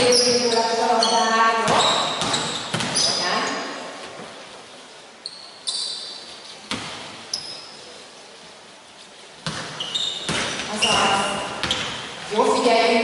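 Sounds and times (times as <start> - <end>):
sneakers squeaking on hardwood: 0.0 - 4.4, 5.1 - 8.0, 9.4 - 12.7
ball bounce: 1.6 - 3.2, 9.4 - 12.0.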